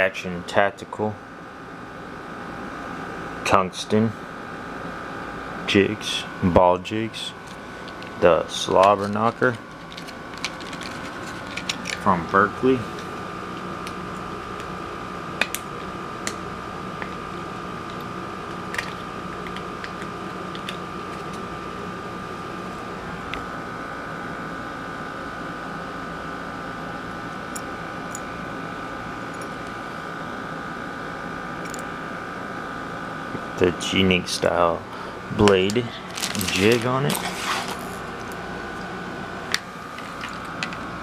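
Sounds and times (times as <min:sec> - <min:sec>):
fan hum: 0:00.0 - 0:41.0
high whine: 0:05.4 - 0:24.8.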